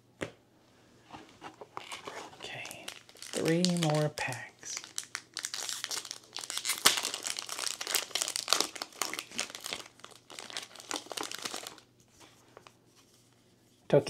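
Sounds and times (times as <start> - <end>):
plastic wrapper crinkling: 1.8 - 12.8.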